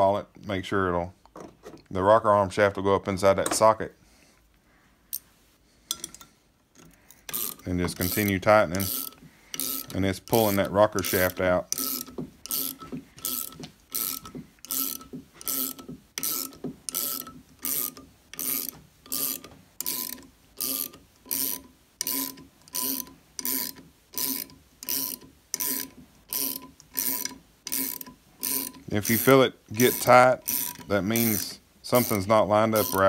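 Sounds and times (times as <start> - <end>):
ratcheting wrench clicking: 6.8 - 33.0.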